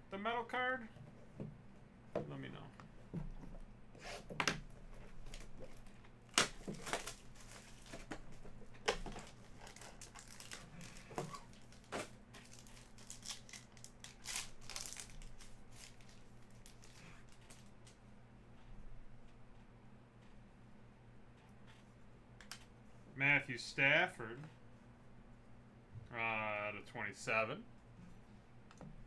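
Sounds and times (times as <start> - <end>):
foil pack crinkling and tearing: 6.3 - 8.2, 8.8 - 17.9.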